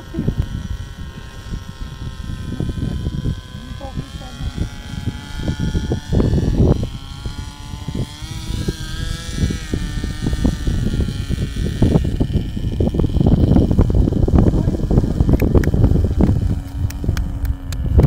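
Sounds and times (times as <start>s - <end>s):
model helicopter rotor whine: 0.0s - 18.0s
wind buffeting microphone: 0.0s - 18.0s.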